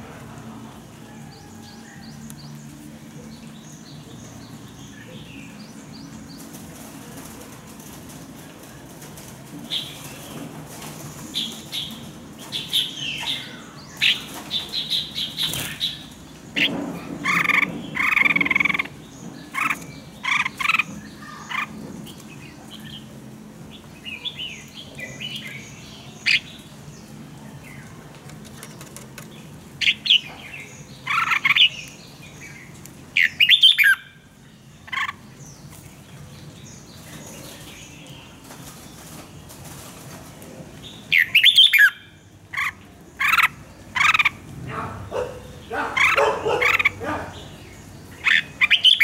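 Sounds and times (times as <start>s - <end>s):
bird whistling song: 33.2s - 34.1s, 41.1s - 42.0s.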